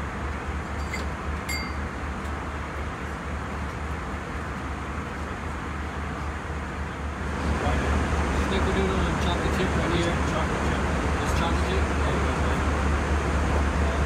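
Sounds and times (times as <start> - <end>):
airliner cabin engine rumble: 0.0 - 14.0
light clinks: 0.8 - 1.8.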